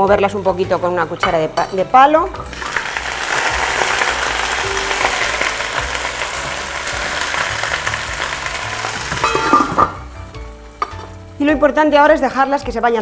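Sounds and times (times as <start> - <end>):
onion rings sizzling in oil: 2.3 - 11.4.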